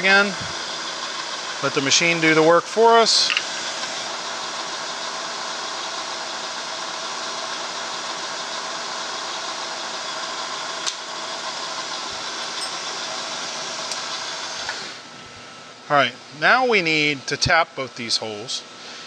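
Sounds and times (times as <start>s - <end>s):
milling machine whirring: 0.0s - 15.2s.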